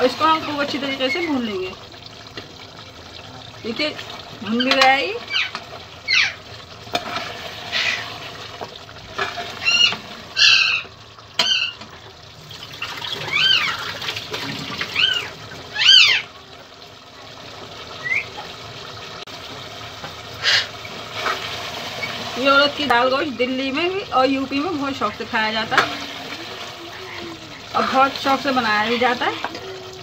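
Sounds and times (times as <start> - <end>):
meat frying and bubbling: 0.0 - 30.0
ladle scraping a pot: 6.9 - 8.3, 9.1 - 10.6.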